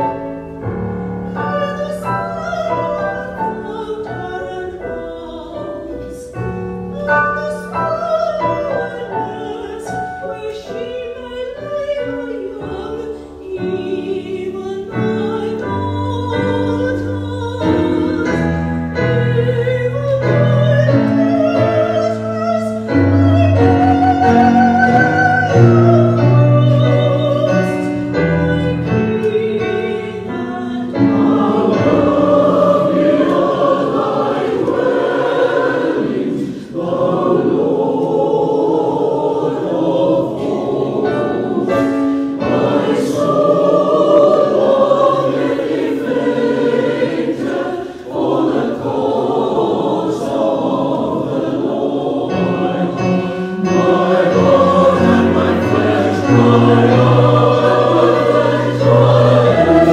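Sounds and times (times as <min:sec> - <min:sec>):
choir singing: 0:00.0 - 0:59.9
piano accompaniment: 0:00.0 - 0:59.9.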